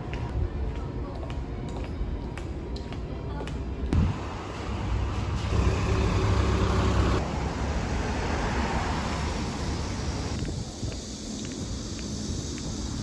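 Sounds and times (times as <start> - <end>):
vehicle engine rumble: 3.9 - 13.0
traffic hiss: 4.0 - 13.0.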